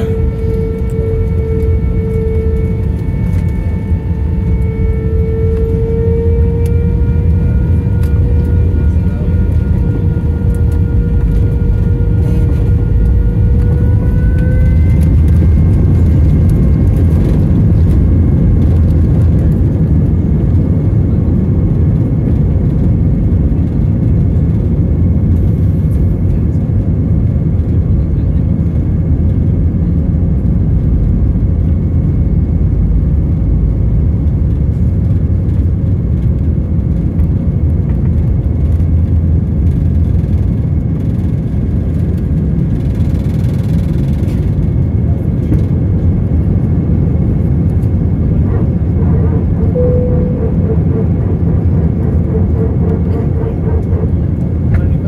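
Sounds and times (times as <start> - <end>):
deep steady rumble: 0.0 - 55.0
jet engine whine: 0.0 - 55.0.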